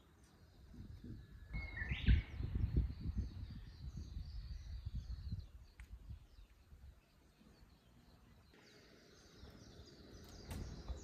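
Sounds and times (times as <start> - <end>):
faint high bird chirps: 0.0 - 11.0
wind rumble on microphone: 0.4 - 7.1
rising bird call: 1.4 - 2.8
bird whistle: 1.5 - 2.6.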